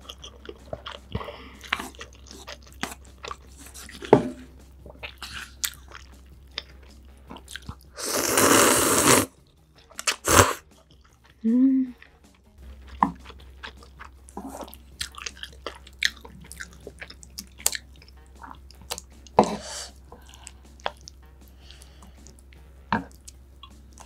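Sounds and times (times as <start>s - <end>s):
chewing noodles: 0.0s - 24.0s
sipping broth: 6.8s - 9.3s, 10.0s - 10.8s
slurping noodles: 7.3s - 9.3s, 10.0s - 10.7s
wet mouth clicks: 9.9s - 10.6s.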